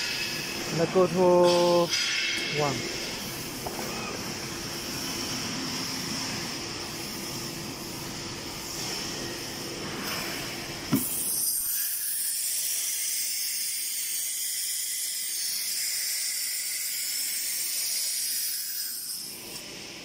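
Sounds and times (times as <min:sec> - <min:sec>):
pneumatic clack: 0:01.3 - 0:04.1, 0:09.8 - 0:12.0.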